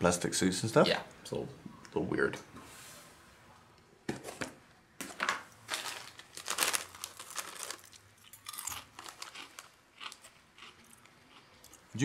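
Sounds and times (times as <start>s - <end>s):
crinkling and crunching: 5.0s - 11.5s.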